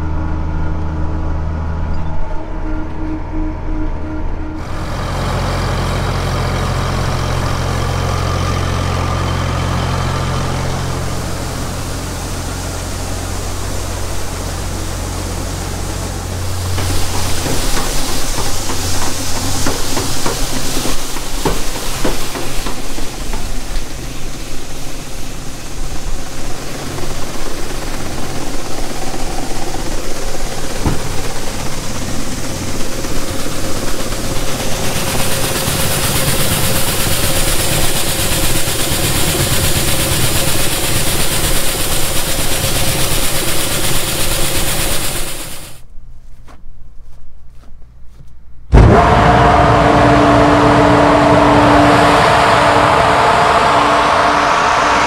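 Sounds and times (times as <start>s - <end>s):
tractor engine running: 4.0s - 45.8s
knocks on metal ladder: 30.8s - 31.2s
rushing wind-like noise: 48.7s - 55.0s.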